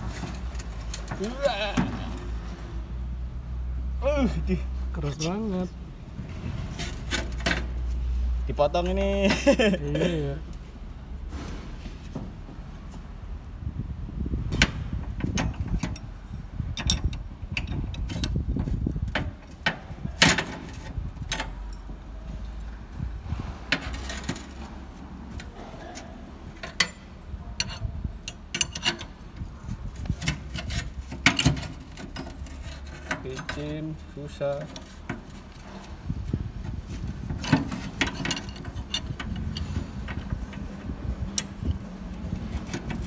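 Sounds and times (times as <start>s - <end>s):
wrenches clinking on metal: 15.2s - 22.7s, 23.7s - 36.0s, 37.2s - 41.8s.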